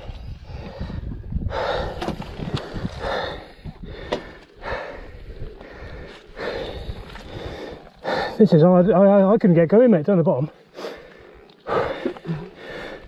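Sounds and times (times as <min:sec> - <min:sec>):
man gasping for breath: 0:00.4 - 0:08.4, 0:10.7 - 0:13.0.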